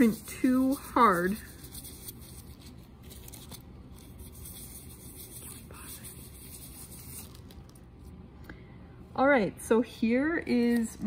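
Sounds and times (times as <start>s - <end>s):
paper rubbing on a plate: 0.0s - 7.8s.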